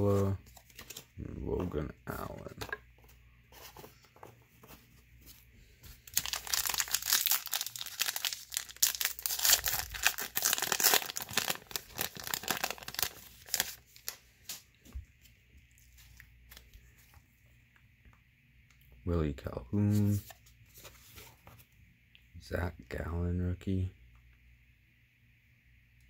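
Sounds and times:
cards being handled: 0.0 - 15.4, 19.9 - 21.7
wrapper torn and crumpled: 6.1 - 14.2.

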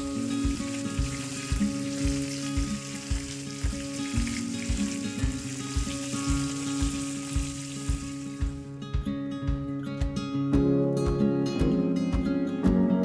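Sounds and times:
fish sizzling in hot oil: 0.0 - 8.6
background music with steady beat: 0.0 - 13.0.

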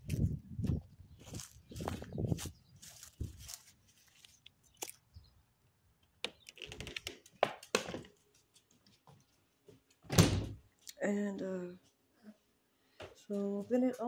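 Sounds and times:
footsteps crunching on dry grass: 0.0 - 5.0.

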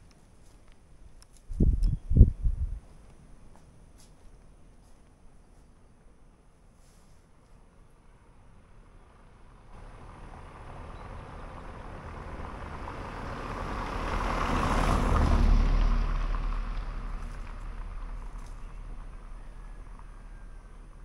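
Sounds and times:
vehicle passing by: 8.6 - 21.0.

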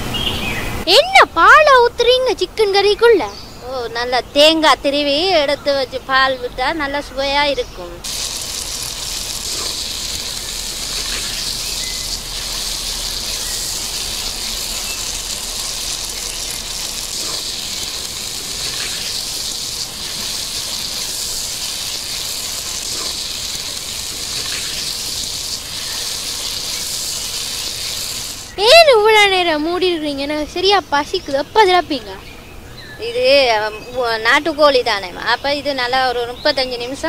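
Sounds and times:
curry sizzling and bubbling in pot: 8.0 - 28.7.

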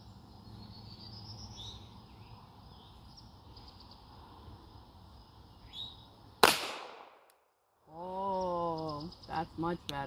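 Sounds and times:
faint bird chirps: 0.0 - 4.2, 5.5 - 6.1
outdoor background noise: 0.0 - 10.0.

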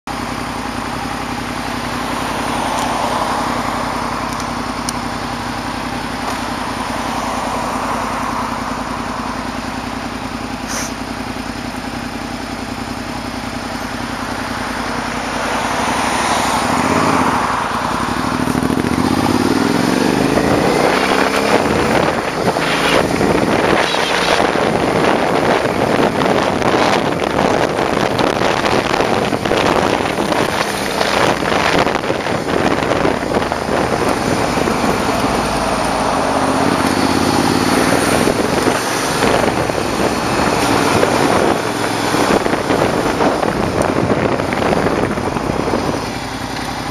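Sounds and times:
motorcycle engine revving: 0.1 - 46.9
wind noise on microphone: 15.9 - 46.9.

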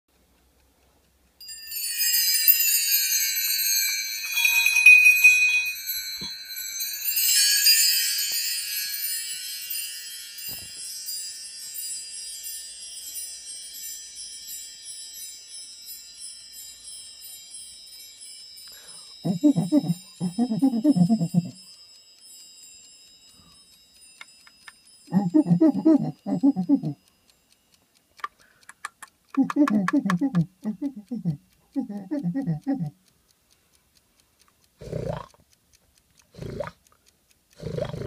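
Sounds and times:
shimmering chime tones: 1.4 - 27.8.

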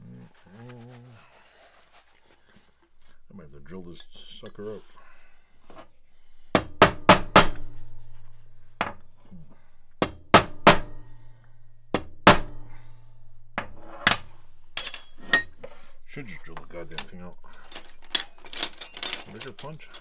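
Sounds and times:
hammer striking steel punch: 6.5 - 7.7, 10.0 - 11.1, 12.0 - 12.7.

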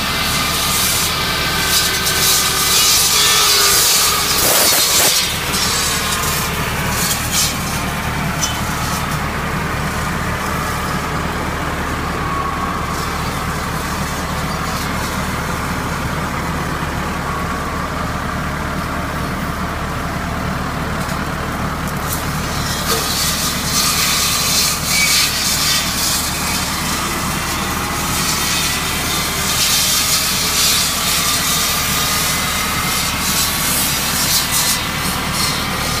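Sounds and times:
branches and leaves being cut: 0.0 - 18.1, 21.0 - 36.0
saw bar whine: 0.0 - 36.0
tractor engine hum: 0.0 - 36.0.

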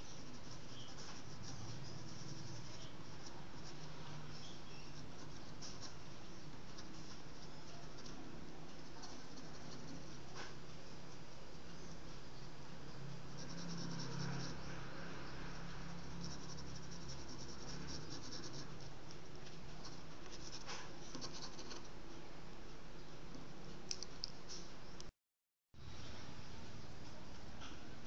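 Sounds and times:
pencil scratching on paper: 0.0 - 21.9.

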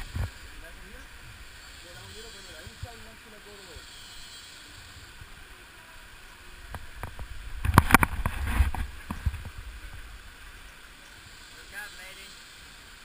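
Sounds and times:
microphone handling rumble: 6.7 - 10.2.

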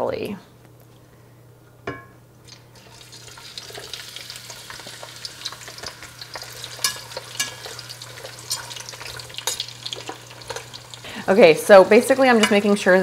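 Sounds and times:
vegetables sizzling in hot oil: 2.6 - 13.0
metal spatula scraping pan: 6.3 - 10.7.

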